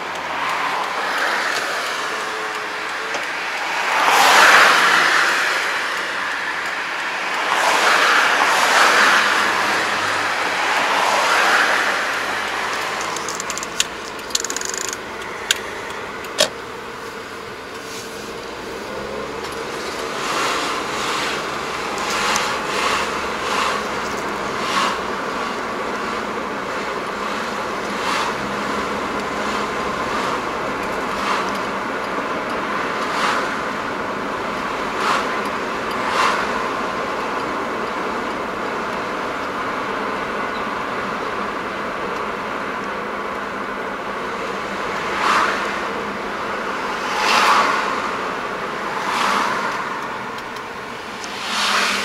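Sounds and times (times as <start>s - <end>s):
road and tyre noise: 0.0s - 52.0s
sharp clicks: 11.4s - 16.6s.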